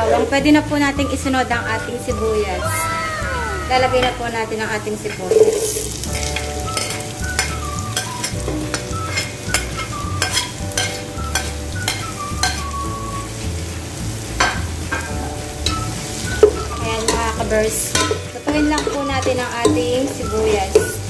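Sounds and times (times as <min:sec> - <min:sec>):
onion sizzling in hot oil: 0:00.0 - 0:21.0
metal spoon scraping and clinking: 0:05.1 - 0:12.6, 0:17.9 - 0:19.9.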